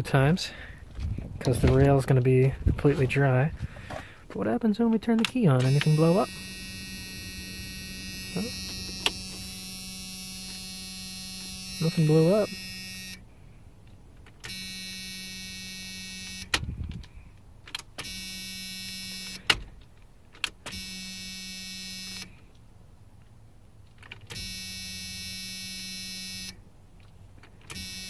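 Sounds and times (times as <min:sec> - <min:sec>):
electric fuel pump buzzing: 0:05.6 - 0:13.3, 0:14.4 - 0:16.6, 0:18.0 - 0:19.5, 0:20.7 - 0:22.3, 0:24.3 - 0:26.6, 0:27.7 - 0:28.0.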